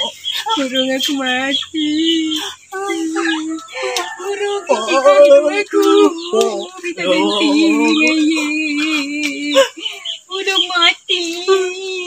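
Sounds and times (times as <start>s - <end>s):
man singing wordless tune: 2.8s - 8.4s.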